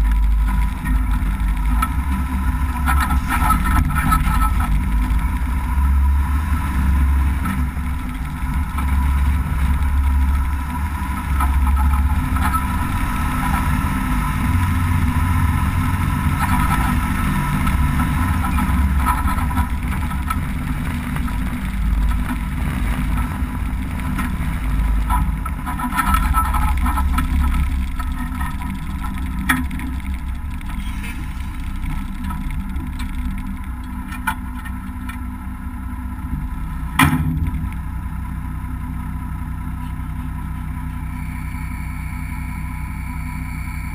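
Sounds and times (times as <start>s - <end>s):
diesel truck engine rumbling: 0.0s - 43.9s
knocks and rattles: 6.6s - 35.2s.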